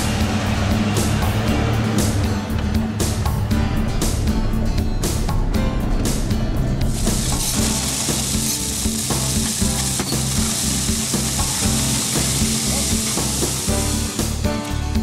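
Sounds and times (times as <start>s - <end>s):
background music with beat: 0.0s - 15.0s
gravel sliding and being raked: 6.9s - 14.4s.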